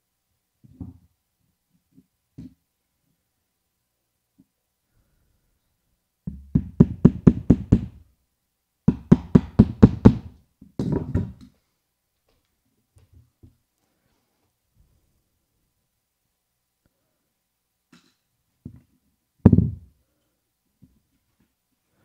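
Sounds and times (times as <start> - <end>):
hammer striking nail: 6.3 - 8.0, 8.9 - 10.4.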